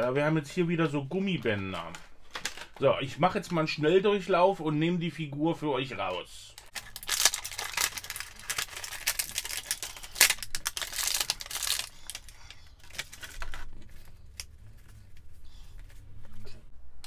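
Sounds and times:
plastic packaging crackling: 1.3s - 2.9s, 6.5s - 15.3s.

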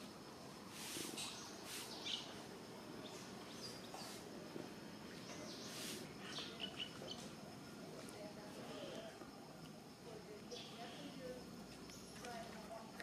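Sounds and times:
birds chirping: 1.2s - 2.4s, 3.0s - 4.2s, 5.0s - 7.3s, 10.4s - 12.8s.

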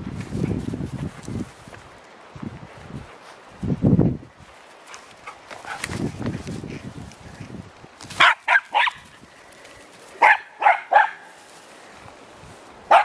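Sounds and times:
dog barking excitedly: 8.2s - 9.0s, 10.2s - 11.3s.

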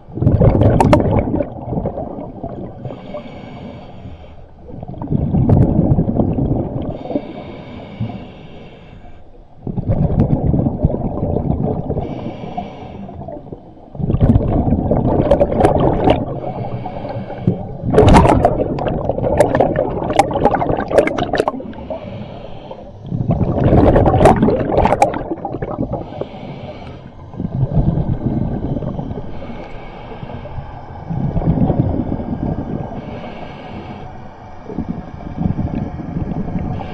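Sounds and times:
gurgle of exhaled bubbles: 0.0s - 3.2s, 4.6s - 7.4s, 9.6s - 12.4s, 13.0s - 26.5s, 27.2s - 29.6s, 31.1s - 33.2s, 34.6s - 36.9s
regulator inhale hiss: 2.8s - 4.7s, 6.9s - 9.6s, 11.9s - 13.9s, 16.2s - 17.9s, 21.5s - 23.3s, 25.8s - 27.5s, 29.1s - 36.9s.

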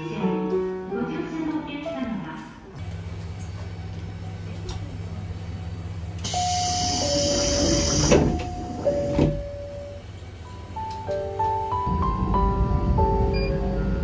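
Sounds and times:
diesel railcar idling: 2.8s - 14.0s
doors closing with air hiss: 6.2s - 10.0s
two-note falling door chime: 6.3s - 10.0s.

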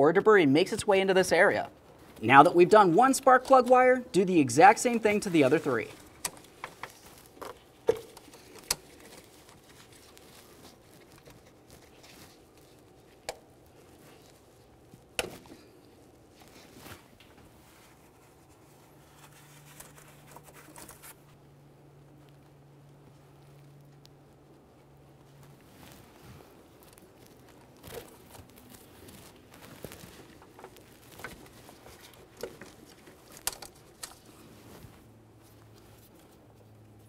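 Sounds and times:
faint low hum: 0.0s - 37.0s
rubber boots rustling and rubbing: 4.7s - 21.4s, 24.9s - 33.4s, 34.1s - 36.7s.

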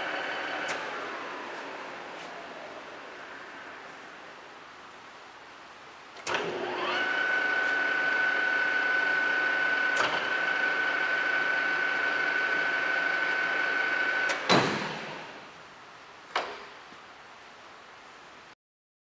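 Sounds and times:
lathe gear whine: 0.0s - 3.8s, 6.3s - 14.4s.

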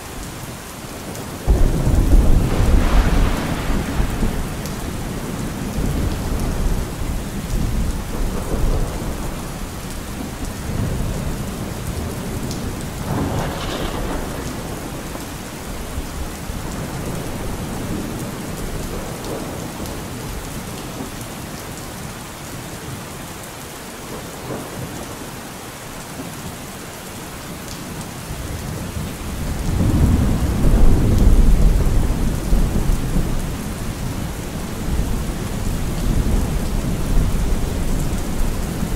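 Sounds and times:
steady rain: 0.0s - 38.9s
low rolling thunder: 1.4s - 20.4s, 28.4s - 38.9s.

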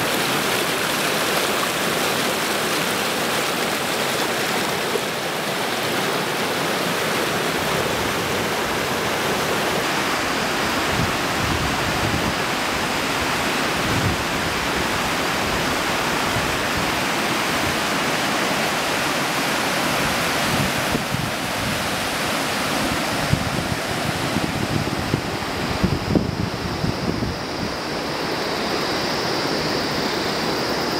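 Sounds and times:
river rapids rushing: 0.0s - 30.9s
wind buffeting microphone: 22.8s - 28.0s.

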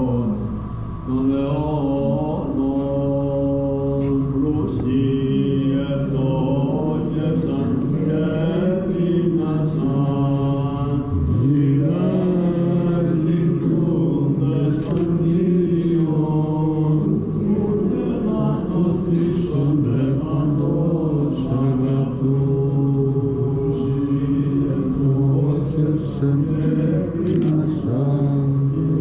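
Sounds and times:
chant over held low note: 0.0s - 29.0s.

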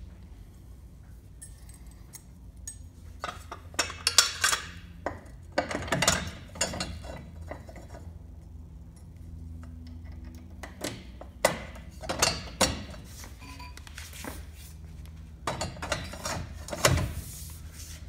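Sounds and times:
metal parts clinking and rattling: 1.4s - 4.9s.

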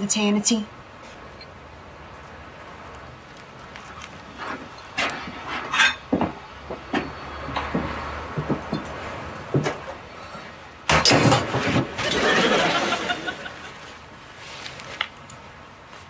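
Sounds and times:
clatter of sharp knocks: 5.0s - 9.9s
rustling noise: 13.7s - 15.2s.

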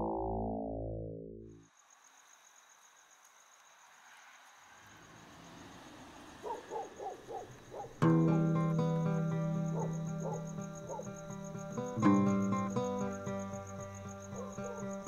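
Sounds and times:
crickets chirring: 1.6s - 15.0s
music with sustained notes: 8.0s - 15.0s.

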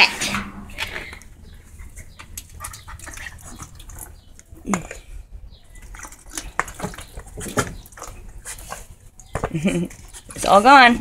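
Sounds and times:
dog lapping water: 1.8s - 4.6s.

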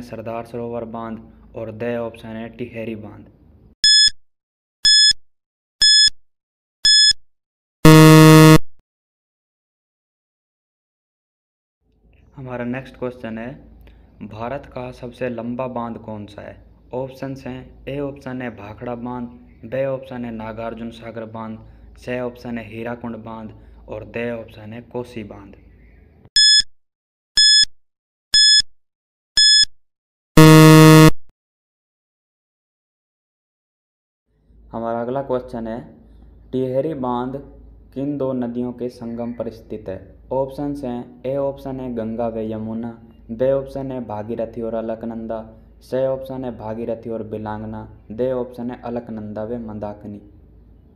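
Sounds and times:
low buzzer: 3.8s - 4.2s, 4.9s - 5.2s, 5.8s - 6.2s, 6.8s - 7.2s, 7.8s - 8.7s, 26.4s - 26.6s, 27.4s - 27.7s, 28.4s - 28.7s, 29.4s - 29.7s, 30.4s - 31.3s
short high beeps: 3.8s - 4.2s, 4.8s - 5.2s, 5.8s - 6.2s, 6.8s - 7.2s, 7.8s - 8.7s, 26.4s - 26.7s, 27.4s - 27.7s, 28.4s - 28.7s, 29.4s - 29.7s, 30.4s - 31.2s.

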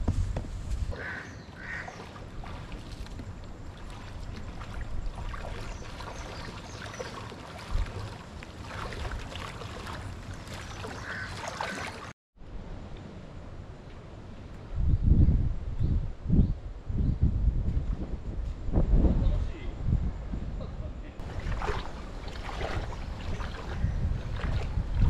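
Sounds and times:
wind rumbling on microphone: 0.0s - 11.2s, 12.4s - 25.0s
footsteps wading through water: 0.5s - 12.2s, 21.2s - 25.0s.

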